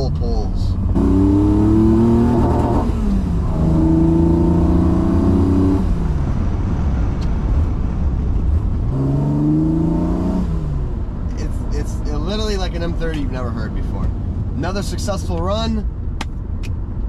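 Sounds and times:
car engine revving through gears: 0.8 - 6.3, 8.8 - 10.9.

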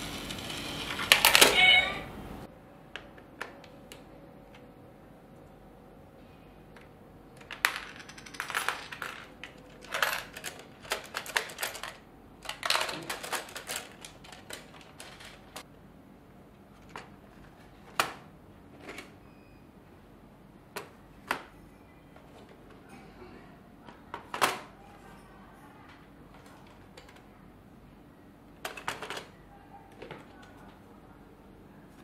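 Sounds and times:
coins clinking: 7.4 - 15.6.

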